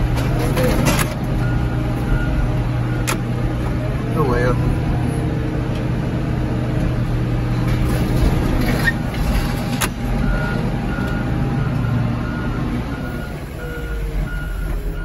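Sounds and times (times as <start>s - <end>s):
diesel engine and hydraulics: 0.0s - 15.0s
reversing alarm beeping: 1.4s - 3.1s, 10.3s - 15.0s.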